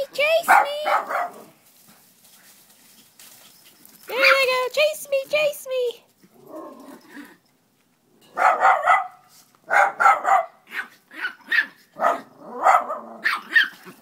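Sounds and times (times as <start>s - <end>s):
dogs barking: 0.5s - 1.5s, 8.3s - 13.8s.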